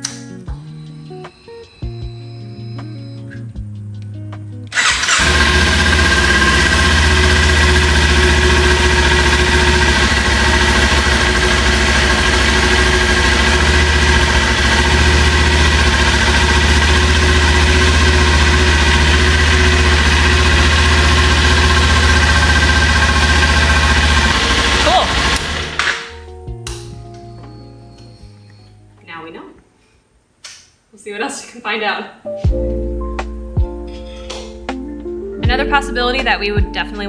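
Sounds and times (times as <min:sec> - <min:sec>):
motorcycle engine idling: 0:04.8 - 0:25.9.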